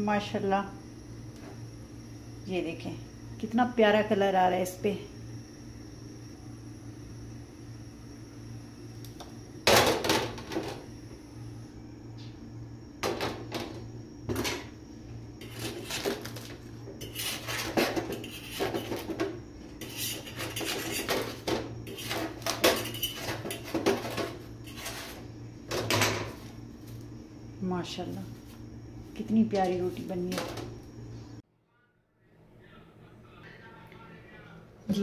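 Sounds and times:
metal utensil scraping griddle: 0:15.4 - 0:16.4, 0:17.0 - 0:19.2, 0:19.8 - 0:25.2.

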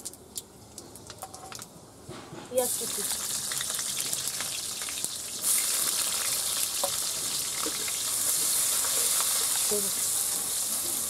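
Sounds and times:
onion sizzling in hot oil: 0:02.6 - 0:11.0.

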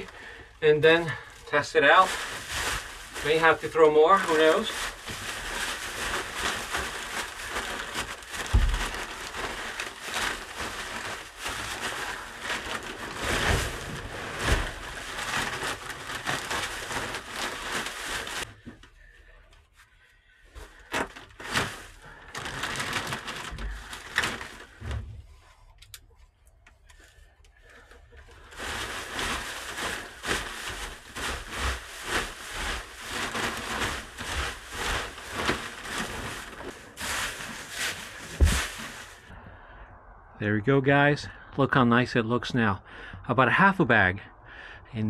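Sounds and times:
wood shavings rustling: 0:00.0 - 0:19.1, 0:20.6 - 0:24.8, 0:27.0 - 0:39.3.

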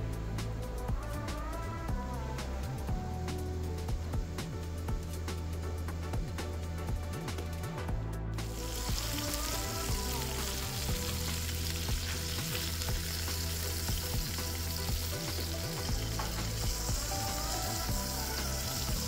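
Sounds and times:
background music: 0:00.0 - 0:19.0
meat sizzling on a griddle: 0:08.4 - 0:19.0.

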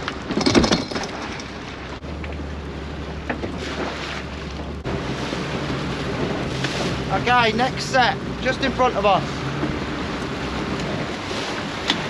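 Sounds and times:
boat engine running: 0:00.0 - 0:12.0
water noise: 0:00.0 - 0:12.0
wind buffeting microphone: 0:00.0 - 0:12.0.

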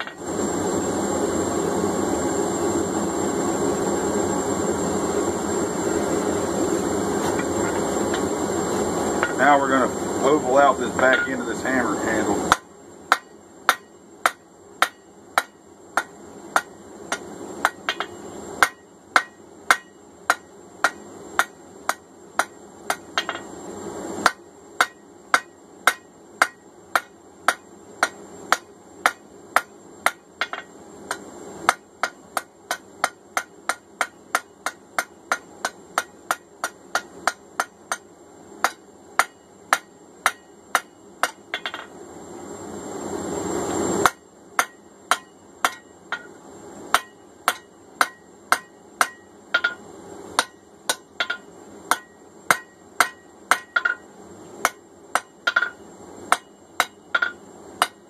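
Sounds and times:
hammer striking steel on anvil: 0:00.0 - 0:00.2, 0:09.2 - 0:09.6, 0:10.3 - 0:23.5, 0:24.2 - 0:41.9, 0:44.0 - 0:49.8, 0:50.4 - 0:58.0.

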